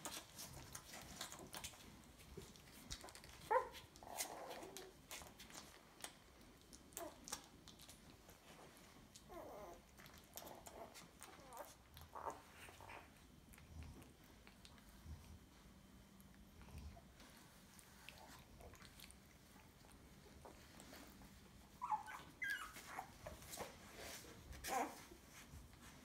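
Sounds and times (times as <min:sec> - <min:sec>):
puppies wet sucking clicks: 0:00.0 - 0:21.4
puppy squeaks and whimpers: 0:02.6 - 0:06.1, 0:08.6 - 0:13.2, 0:21.6 - 0:25.4.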